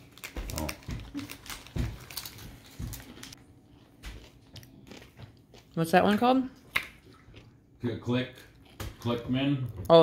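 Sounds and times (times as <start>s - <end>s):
plastic wrapper crinkling and tearing: 0.0s - 3.4s.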